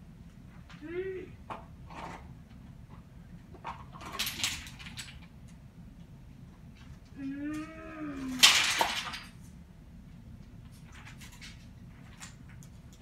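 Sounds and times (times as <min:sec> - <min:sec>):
boy humming rising tone: 0:07.2 - 0:08.4.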